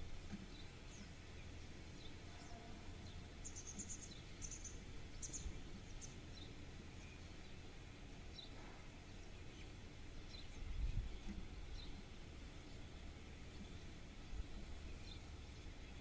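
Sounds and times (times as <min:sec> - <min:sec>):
steady low rumble: 0:04.2 - 0:16.0.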